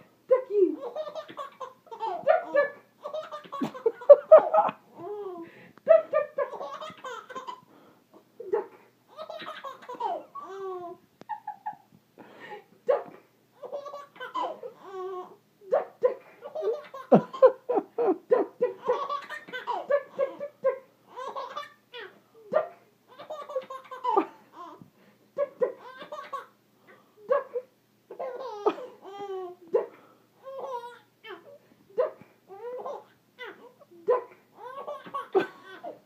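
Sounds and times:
baby laughing: 0.8 - 7.6, 9.1 - 11.8, 13.6 - 15.4, 16.4 - 22.2, 23.1 - 24.8, 25.4 - 26.6, 27.4 - 29.6, 30.4 - 36.0
woman laughing: 3.6 - 6.7, 11.3 - 11.9, 16.1 - 19.1, 19.8 - 20.8.

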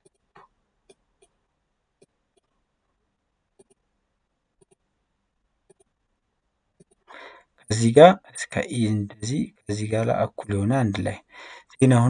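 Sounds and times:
computer mouse clicks: 3.6 - 3.8, 4.6 - 4.8, 5.7 - 6.0, 6.8 - 7.1.

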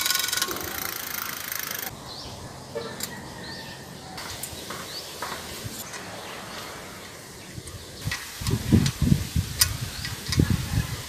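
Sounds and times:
bicycle chain rattling: 0.0 - 1.9
outdoor background: 0.0 - 11.0.

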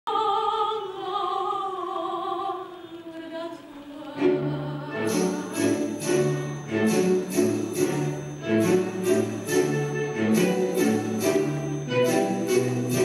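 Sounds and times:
soprano singing: 0.1 - 13.0
bright chiming notes: 5.0 - 13.0.

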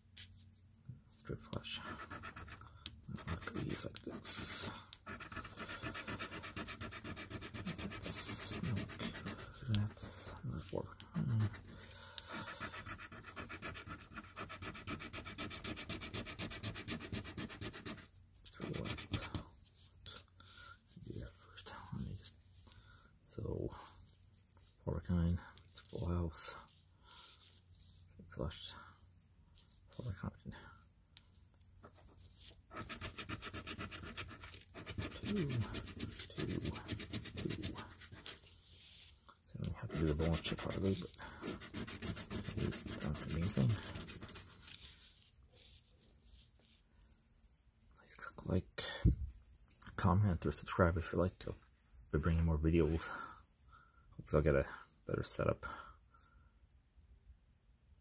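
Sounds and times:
coin scraping scratch card: 5.1 - 9.4.

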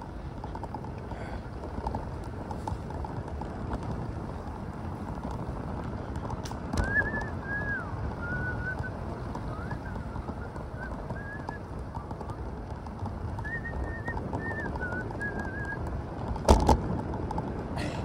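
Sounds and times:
bicycle road rumble: 0.0 - 18.0
wind noise while cycling: 0.0 - 18.0
thin wavering whistle: 6.8 - 11.7, 13.4 - 15.8.

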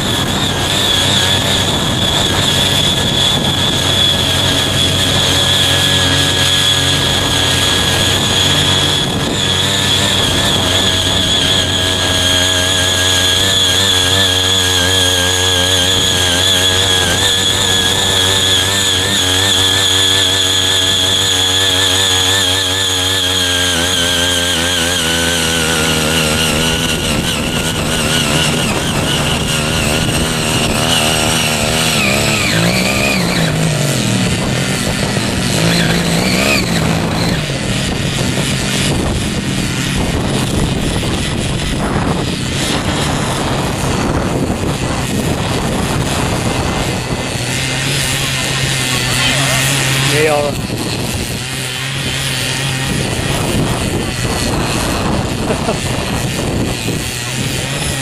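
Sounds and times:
cultivator engine under load: 0.0 - 58.0
high whine: 0.0 - 58.0.

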